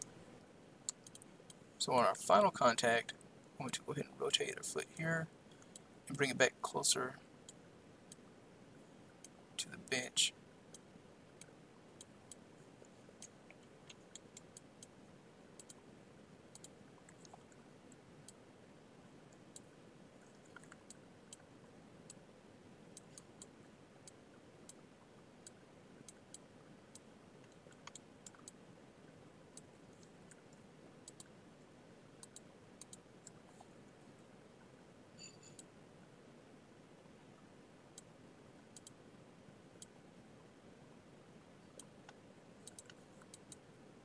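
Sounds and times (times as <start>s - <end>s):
computer mouse clicks: 0.9s - 1.6s, 13.2s - 15.0s, 15.6s - 15.8s, 16.5s - 18.4s, 20.3s - 21.5s, 22.9s - 24.8s, 25.4s - 28.6s, 29.5s - 31.4s, 32.2s - 33.7s, 38.7s - 39.0s, 41.7s - 43.7s.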